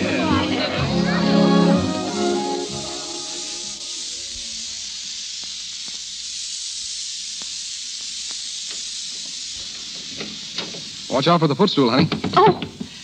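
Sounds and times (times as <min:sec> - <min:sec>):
music bridge: 0:00.0 - 0:04.1
recording hiss: 0:00.0 - 0:13.0.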